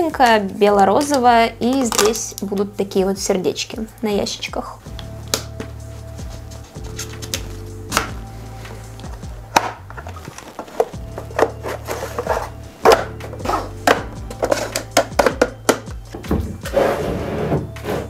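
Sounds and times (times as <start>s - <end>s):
background music: 0.0s - 18.0s
plastic panels knocking and clicking: 12.2s - 16.6s.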